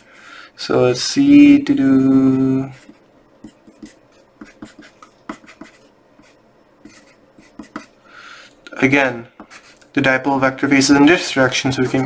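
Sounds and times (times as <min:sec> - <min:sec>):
pencil scratching on paper: 0:02.6 - 0:08.0, 0:09.4 - 0:09.9, 0:11.5 - 0:12.0.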